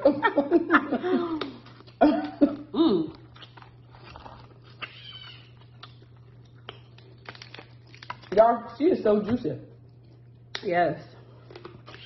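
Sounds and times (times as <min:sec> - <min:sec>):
steady low hum: 0:00.0 - 0:12.0
cough-like vocal sounds: 0:02.0 - 0:03.1.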